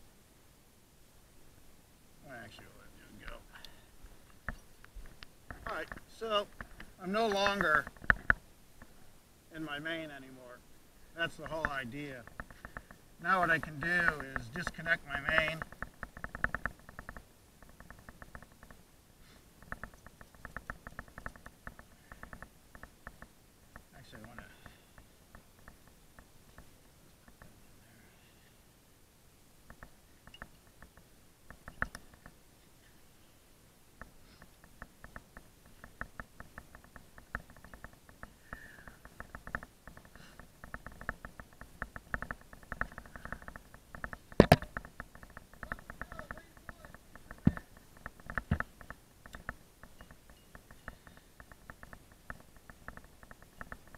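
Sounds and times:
rapid clicking of carabiners: 11.4s - 18.8s, 19.6s - 27.5s, 34.0s - 53.9s.

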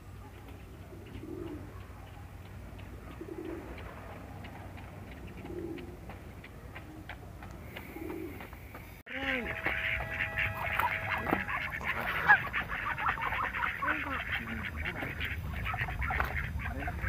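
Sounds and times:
pigeon cooing: 0.4s - 2.2s, 2.8s - 6.0s, 7.8s - 8.5s, 9.1s - 17.0s.

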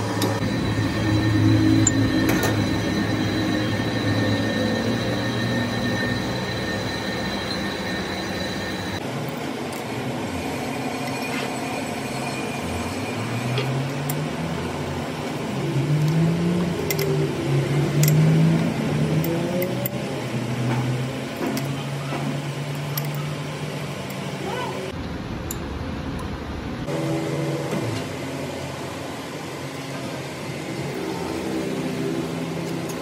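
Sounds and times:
low wavering droning tone: 0.0s - 9.0s
workshop machinery noise: 0.0s - 33.0s.

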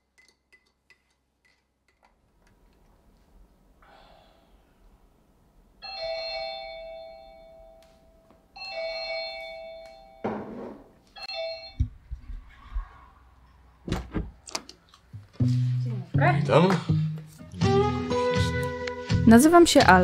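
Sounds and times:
doorbell chime ringing: 5.8s - 10.3s, 11.2s - 12.0s.

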